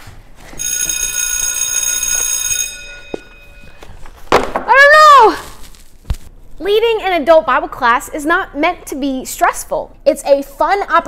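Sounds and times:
ringing alarm bell: 0.4s - 4.1s
person crying out: 4.7s - 5.6s.

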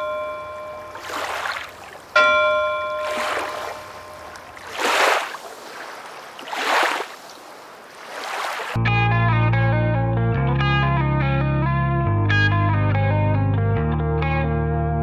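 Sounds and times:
bell ringing: 0.0s - 1.4s, 2.2s - 4.6s
waves washing: 0.0s - 8.8s.

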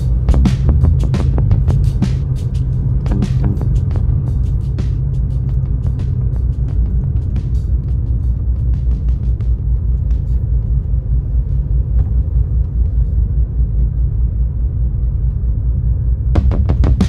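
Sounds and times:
music with drum hits: 0.0s - 12.6s, 16.4s - 17.0s
car rumbling on road: 0.0s - 17.0s.

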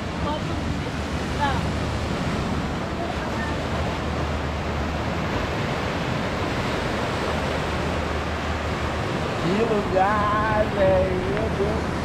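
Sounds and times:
wind rumble on microphone: 0.0s - 12.0s
surf breaking in wave pool: 4.8s - 12.0s.

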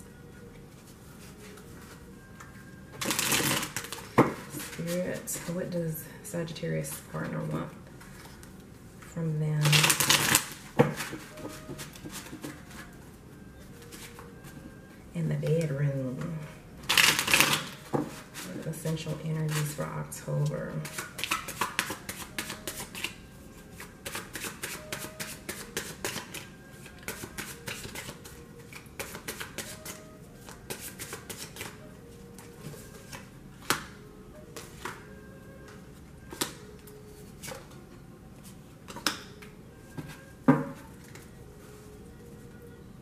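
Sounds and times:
faint music: 0.0s - 43.0s
cards being shuffled: 3.0s - 5.5s, 16.9s - 18.5s, 20.8s - 23.2s, 23.8s - 31.8s.

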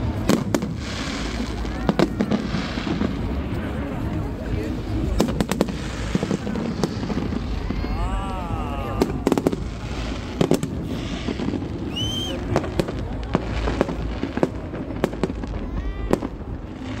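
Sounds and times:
fireworks bangs: 0.0s - 17.0s
low rumble: 0.0s - 17.0s
firework whistle: 8.8s - 13.0s.

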